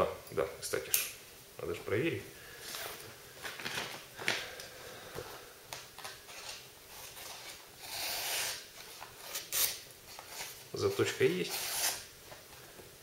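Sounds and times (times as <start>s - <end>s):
paper rustling: 2.7s - 4.5s.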